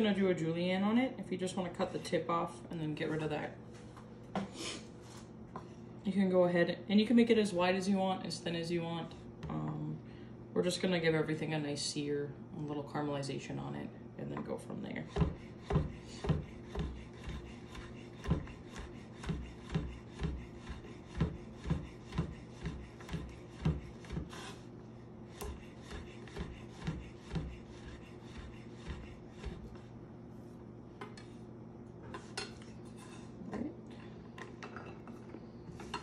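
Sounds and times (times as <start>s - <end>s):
knife chopping on wooden board: 15.1s - 24.5s, 25.4s - 29.8s.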